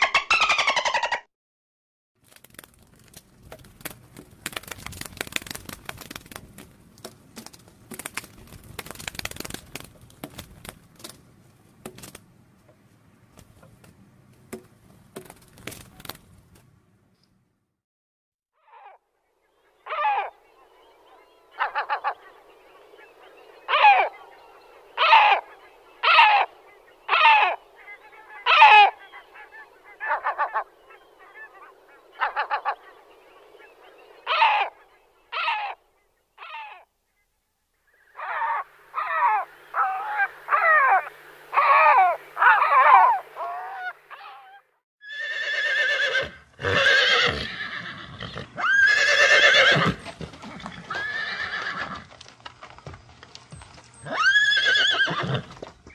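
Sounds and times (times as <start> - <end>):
gull calling harsh cries: 25.0 - 26.5, 27.1 - 27.6, 28.4 - 30.7, 34.2 - 35.8, 38.2 - 47.9
horse neighing: 45.0 - 52.1, 54.0 - 55.6.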